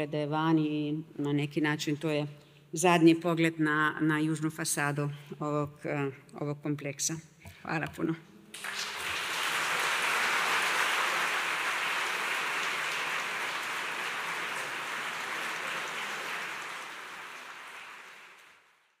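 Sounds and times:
audience applauding: 8.6s - 18.8s.

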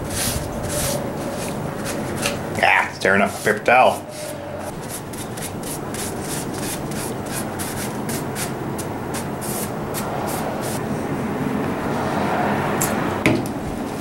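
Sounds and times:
paper towel rubbing on wood: 0.0s - 10.8s.

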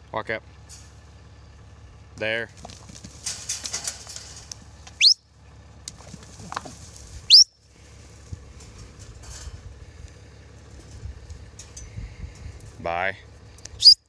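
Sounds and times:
hooves thudding in dirt: 2.5s - 5.0s, 5.8s - 12.8s
sharp rising whistles: 5.0s - 5.2s, 7.3s - 7.5s.

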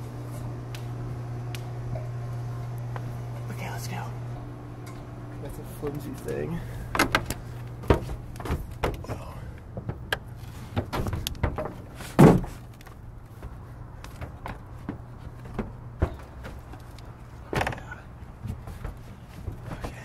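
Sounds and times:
knocks and scrapes on slate roof: 7.0s - 20.0s.

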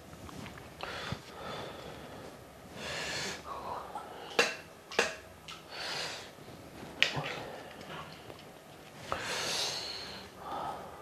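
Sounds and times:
person breathing hard: 0.8s - 4.4s, 5.6s - 6.4s, 9.0s - 11.0s.

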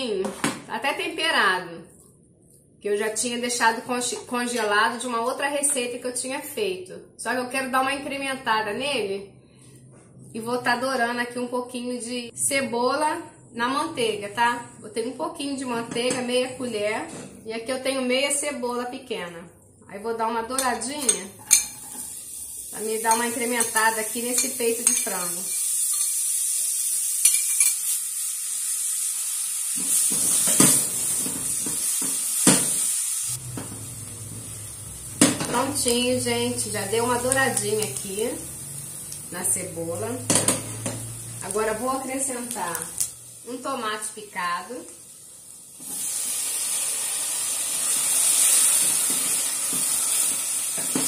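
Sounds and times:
onion sizzling in butter: 20.8s - 51.0s
low hum: 33.4s - 41.6s.

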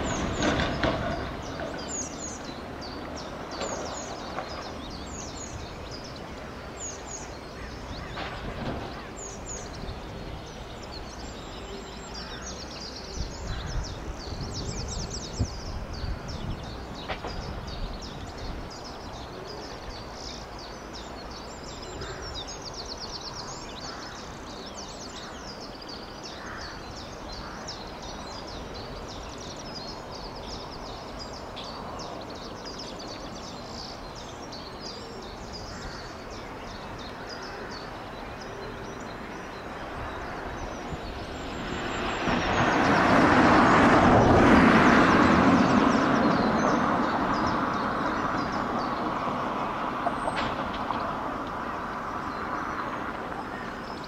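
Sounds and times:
small birds singing and chirping: 0.0s - 54.0s.

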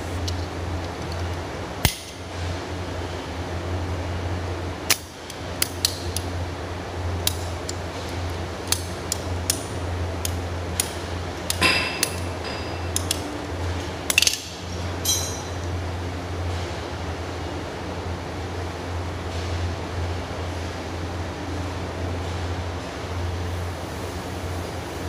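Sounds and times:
steady low hum: 0.0s - 25.0s
sharp clicks of tools: 4.9s - 6.3s, 7.2s - 13.4s.

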